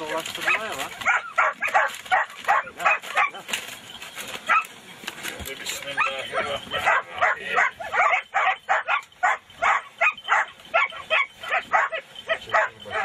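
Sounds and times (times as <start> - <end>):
dog barking: 0.4 - 3.4, 4.5 - 4.7, 5.9 - 13.0.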